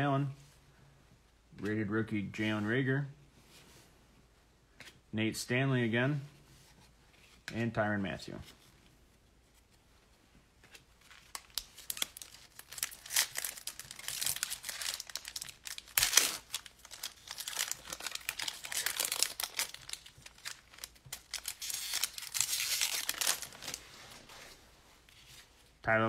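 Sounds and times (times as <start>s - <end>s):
foil wrapper crinkling and tearing: 11.0s - 23.8s.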